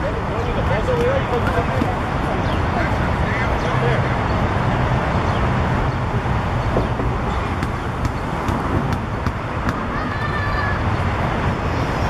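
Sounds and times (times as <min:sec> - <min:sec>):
sharp taps: 0:06.8 - 0:09.9.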